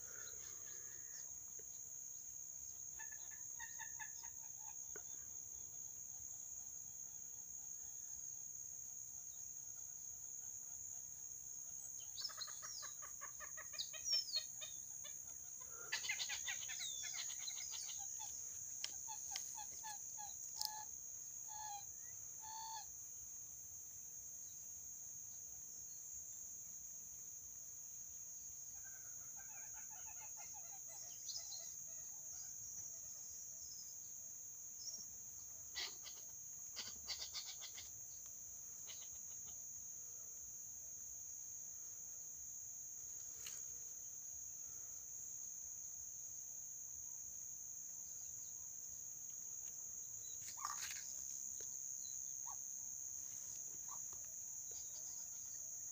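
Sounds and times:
high insect drone: 0.0s - 55.9s
faint bird clucking calls: 12.0s - 20.9s, 28.8s - 33.2s, 35.5s - 39.7s, 50.2s - 51.7s, 53.8s - 55.6s.

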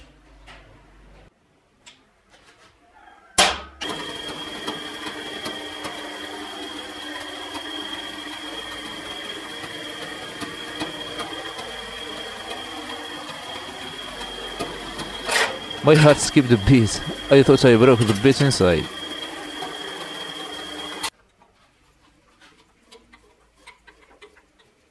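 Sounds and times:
drill press whining: 3.8s - 21.1s.

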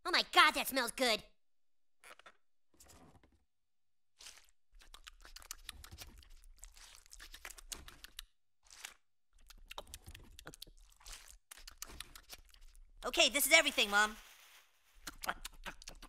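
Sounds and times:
chewing and crunching: 2.0s - 3.4s, 4.2s - 13.0s, 15.0s - 16.0s.

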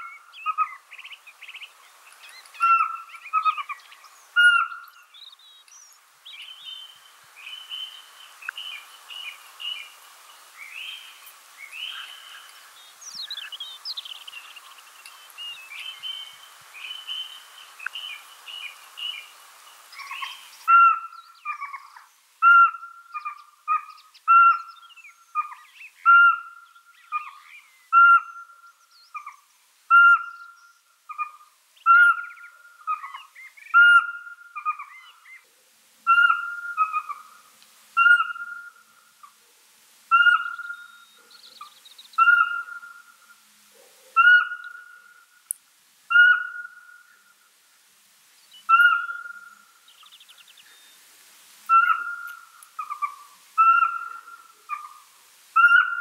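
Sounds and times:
owl whistled calls: 2.6s - 3.8s, 4.4s - 4.9s, 20.0s - 24.8s, 25.4s - 35.4s, 36.1s - 37.4s, 38.0s - 39.3s, 40.1s - 43.4s, 44.2s - 45.4s, 46.1s - 47.3s, 48.7s - 49.6s, 51.7s - 55.0s, 55.6s - 56.0s.

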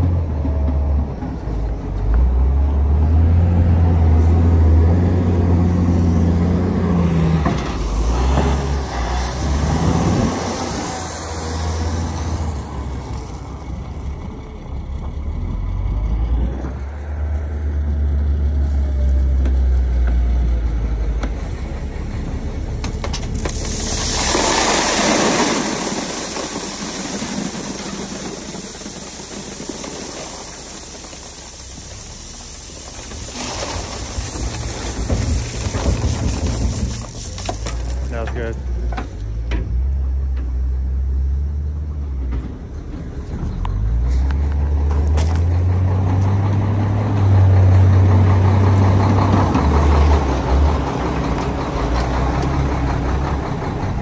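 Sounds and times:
truck diesel engine rumbling: 0.0s - 54.0s
loud hiss: 23.3s - 38.2s.

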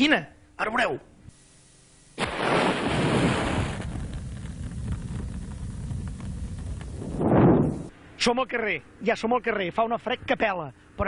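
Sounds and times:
faint crackles: 2.2s - 7.9s
match flaring and burning hiss: 2.2s - 7.9s.

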